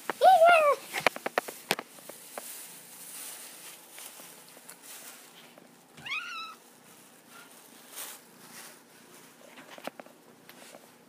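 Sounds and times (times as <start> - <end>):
cat meowing: 6.0 - 6.6.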